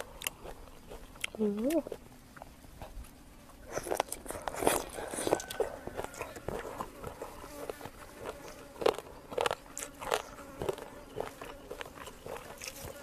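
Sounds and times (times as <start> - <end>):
close-miked biting and chewing: 0.0 - 13.0.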